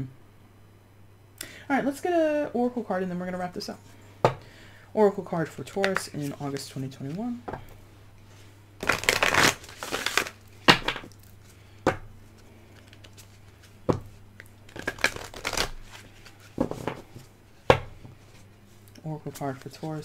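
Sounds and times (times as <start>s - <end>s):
faint low hum: 0.0s - 20.0s
cards shuffling: 8.8s - 11.5s, 12.3s - 13.8s, 14.7s - 17.3s, 19.2s - 20.0s
cards snapping: 14.4s - 16.0s.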